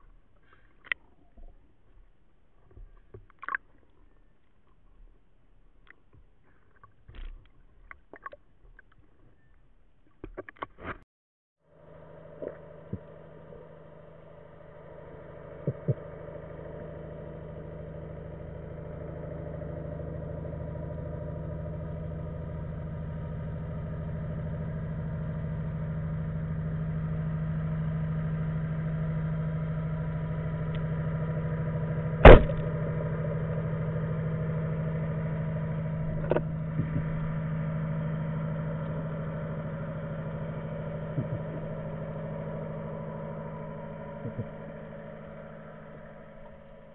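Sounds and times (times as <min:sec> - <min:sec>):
motorboat engine underwater: 0:00.0 - 0:11.0, 0:11.6 - 0:46.9
speargun firing crack: 0:32.2 - 0:32.7.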